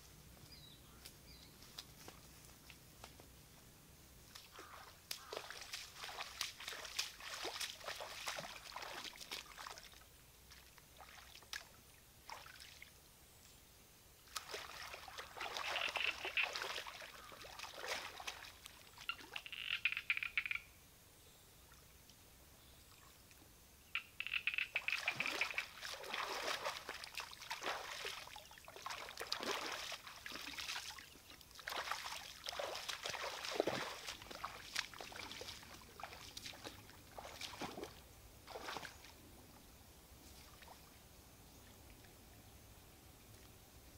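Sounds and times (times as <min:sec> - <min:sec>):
water splashing and sloshing: 0:04.2 - 0:13.0, 0:14.2 - 0:19.9, 0:24.2 - 0:39.4, 0:40.2 - 0:41.0.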